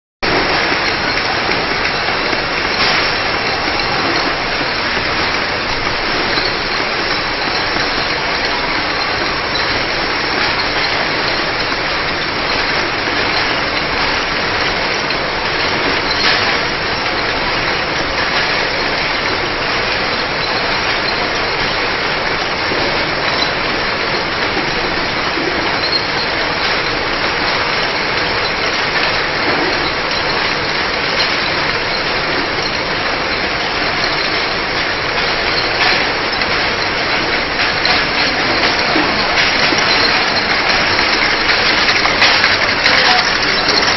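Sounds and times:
labeling machine running: 0.2 - 43.9.

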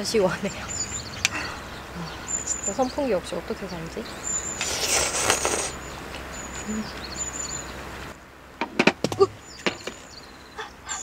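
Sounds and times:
noodles being slurped: 4.6 - 5.8.

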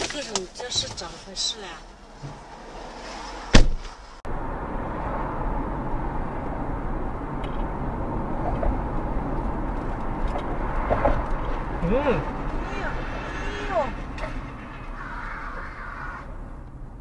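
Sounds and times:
car road and wind noise: 0.0 - 17.0
car collision bang: 3.5 - 4.0.

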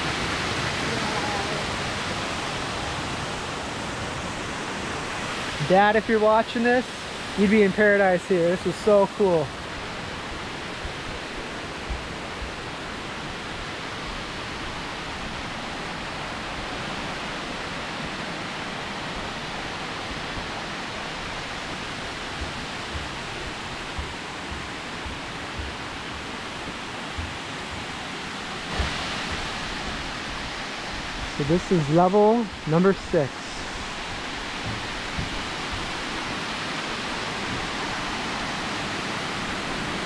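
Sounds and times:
waterfall rushing: 0.0 - 40.0
soft low thumps: 22.2 - 29.7, 33.7 - 36.2.

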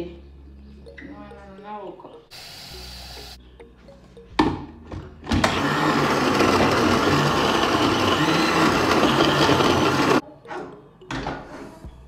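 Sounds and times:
blender whirring: 5.4 - 10.2.

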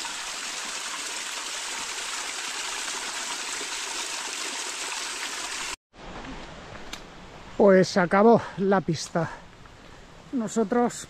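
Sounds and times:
water rushing down rocks: 0.0 - 5.8.

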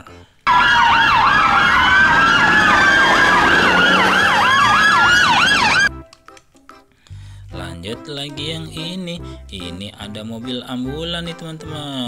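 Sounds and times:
police car sirens wailing and yelping: 0.5 - 5.9.

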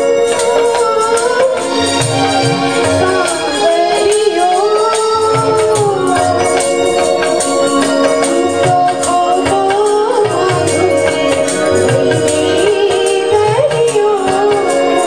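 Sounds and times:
harmonium chords: 0.0 - 15.0
person singing: 0.0 - 15.0.

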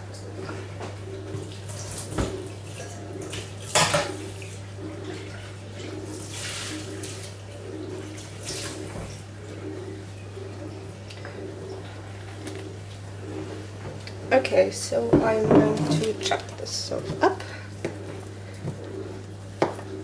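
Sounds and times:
steady low hum: 0.0 - 20.0
dishes knocking and clattering: 3.7 - 4.2, 15.1 - 16.1.

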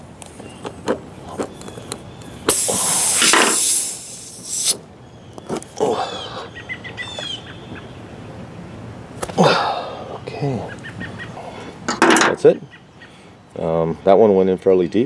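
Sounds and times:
air hissing out of a tire: 2.4 - 4.8.

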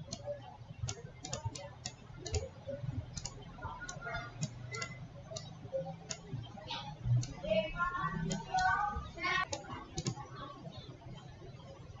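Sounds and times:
computer mouse clicking: 0.0 - 6.4, 7.2 - 7.5, 8.2 - 8.8, 9.4 - 10.2.

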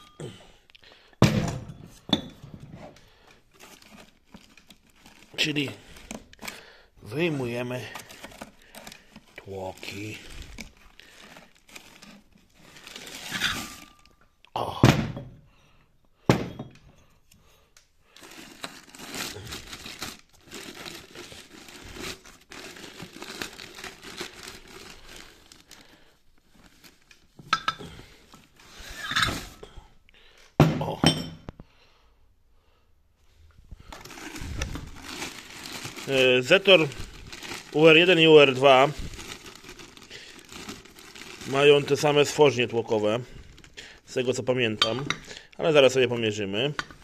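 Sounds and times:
cardboard boxes rustling: 1.9 - 14.0, 18.2 - 25.8, 33.8 - 42.4
plastic bags crinkling: 3.0 - 14.3, 18.0 - 29.7, 33.5 - 47.0.

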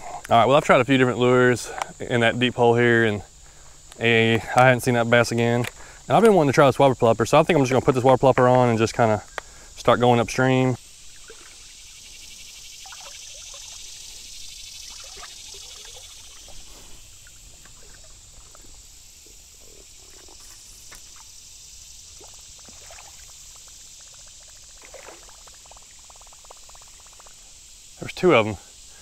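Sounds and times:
high insect drone: 0.0 - 29.0
water trickling: 7.9 - 27.7
small splashes: 10.8 - 21.4, 22.0 - 27.4.

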